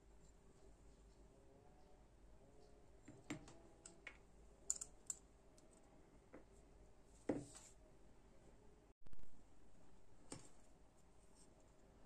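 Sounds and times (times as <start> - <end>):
metal knife parts clicking: 4.7 - 5.2.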